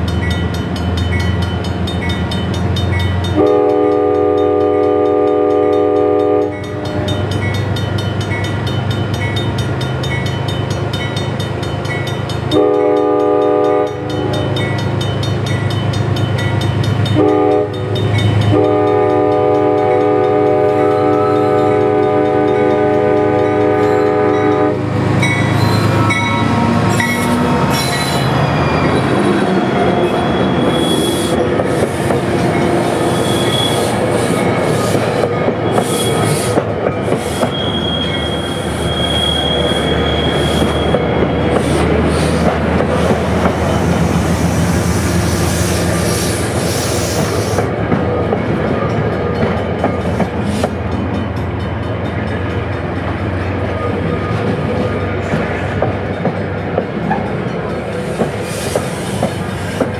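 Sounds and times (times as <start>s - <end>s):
crossing bell dinging: 0.0s - 41.6s, 47.8s - 58.3s
train engine noise: 0.0s - 59.9s
train horn blasts: 3.3s - 7.2s, 12.5s - 14.5s, 17.1s - 24.9s
wheel squeals: 25.4s - 32.0s, 33.0s - 42.5s
wheels clacking over rail joints: 40.3s - 44.3s, 47.1s - 59.9s.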